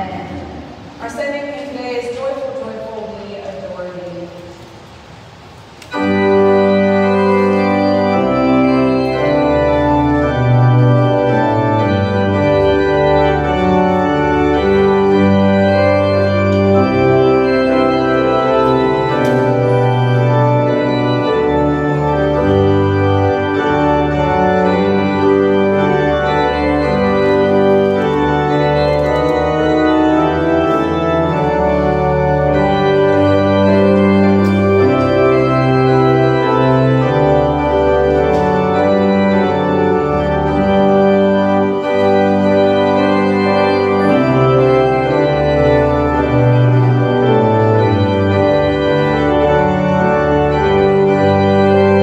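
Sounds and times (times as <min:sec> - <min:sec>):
organ playing a slow hymn: 0:01.6 - 0:52.0.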